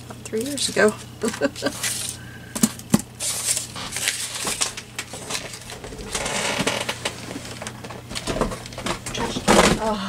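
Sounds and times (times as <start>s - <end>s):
paper rustling: 3.2s - 9.2s.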